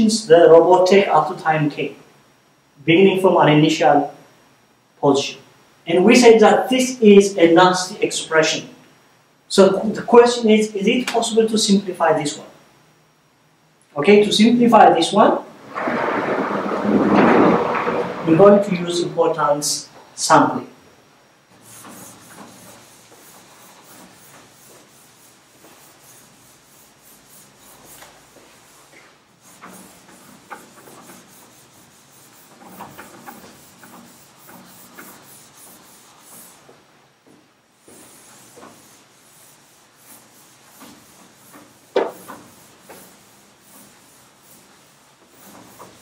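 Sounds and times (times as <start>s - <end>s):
eraser rubbing on chalkboard: 21.5s - 36.8s, 37.8s - 46.0s.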